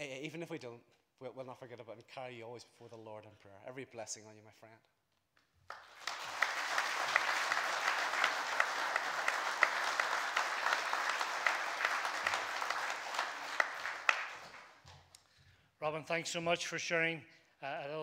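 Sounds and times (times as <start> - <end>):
crowd applauding: 5.7 - 14.8.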